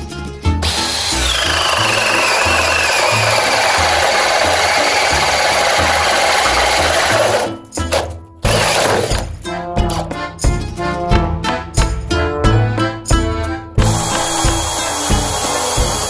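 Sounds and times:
power drill boring through wood: 0:00.6 - 0:09.3, 0:13.8 - 0:16.0.

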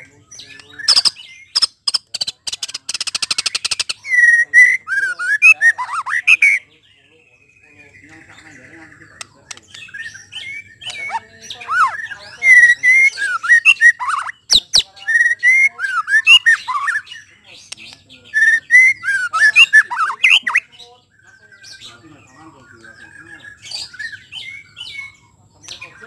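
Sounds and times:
bird singing fluty whistles: 0:04.0 - 0:06.7, 0:09.9 - 0:17.1, 0:18.3 - 0:20.7
sharp clicks: 0:09.2 - 0:09.9.

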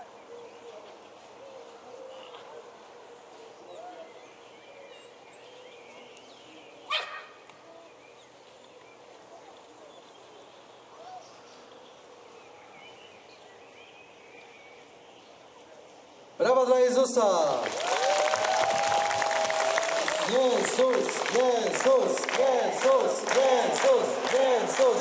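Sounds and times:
dog barking: 0:06.9 - 0:07.4.

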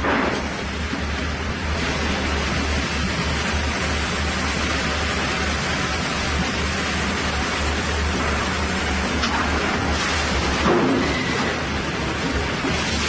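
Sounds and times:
machinery rushing noise: 0:00.0 - 0:13.0
low electric motor hum: 0:00.3 - 0:10.7.

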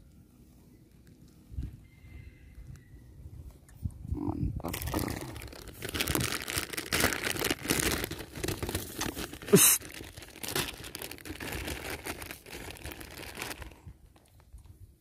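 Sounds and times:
plastic packet crinkling: 0:04.7 - 0:14.4.

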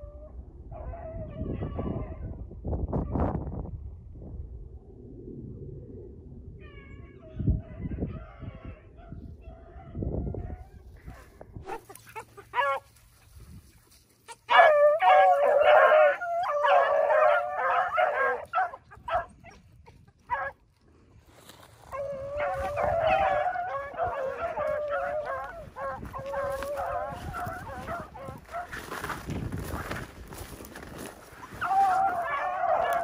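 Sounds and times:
dogs baying in chorus: 0:10.4 - 0:13.0, 0:14.3 - 0:20.6, 0:21.9 - 0:29.1, 0:29.7 - 0:33.0.

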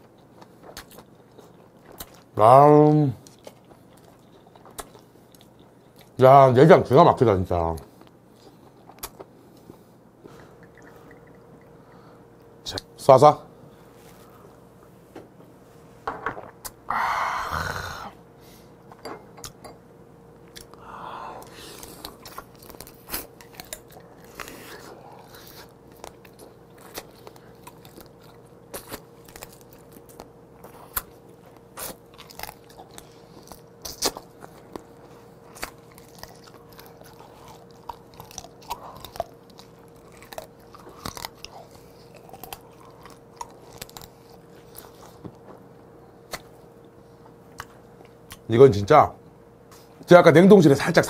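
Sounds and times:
person chewing crab: 0:00.0 - 0:02.3, 0:03.2 - 0:06.2, 0:08.0 - 0:12.4, 0:20.5 - 0:45.4.

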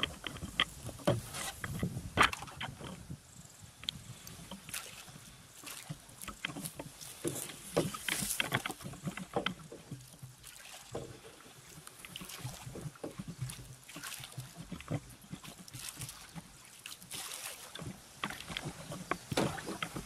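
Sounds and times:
dry grass scraping boat: 0:00.0 - 0:20.0
paddle splashes and drips: 0:00.0 - 0:20.0.

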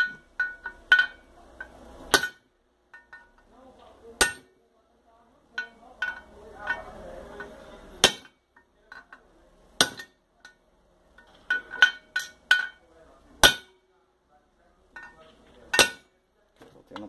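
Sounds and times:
hammer striking metal: 0:02.1 - 0:03.4, 0:04.2 - 0:04.6, 0:05.6 - 0:08.4, 0:09.8 - 0:10.6, 0:13.4 - 0:13.9, 0:15.0 - 0:16.2.

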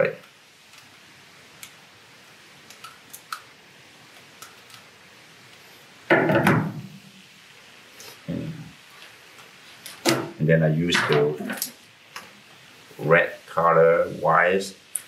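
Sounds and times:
tool clattering on workbench: 0:10.0 - 0:11.7.

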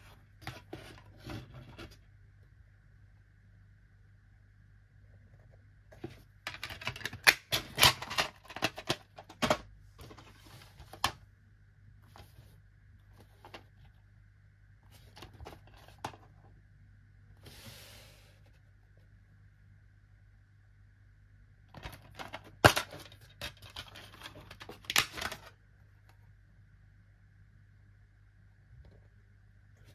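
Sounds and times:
plastic case rustle: 0:06.0 - 0:11.2, 0:12.0 - 0:14.0, 0:14.9 - 0:16.5.

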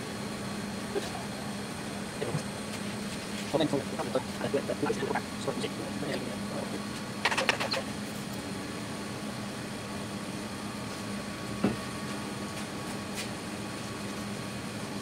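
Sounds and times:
workshop background hum: 0:00.0 - 0:15.0.

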